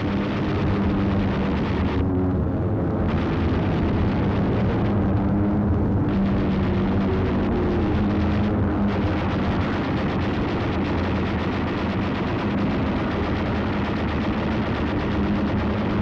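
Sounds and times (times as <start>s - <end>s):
aircraft engines droning: 0.0s - 16.0s
rapid machine-gun fire: 8.9s - 16.0s.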